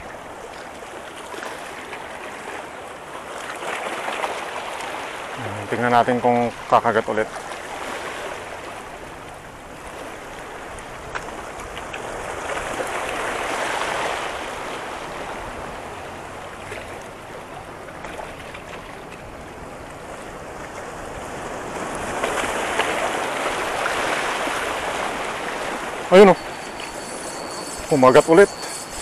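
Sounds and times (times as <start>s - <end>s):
waves washing against rocks: 0.0s - 29.0s.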